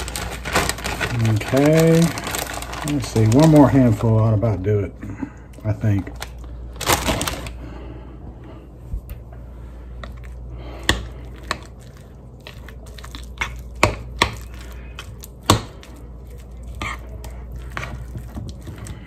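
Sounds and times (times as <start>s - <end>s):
steady low hum: 0.0s - 19.0s
spoon stirring thick mixture: 10.0s - 19.0s.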